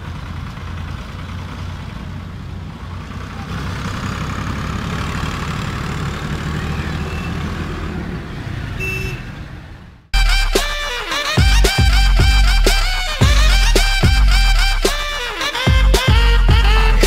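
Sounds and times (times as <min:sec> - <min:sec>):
diesel engine rumble: 0:00.0 - 0:17.0
road noise: 0:00.0 - 0:17.0.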